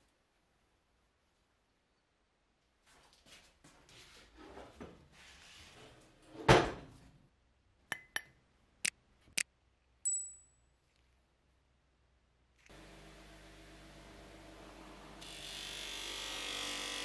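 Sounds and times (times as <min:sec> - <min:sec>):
short high bell ding: 0:10.1 - 0:10.6.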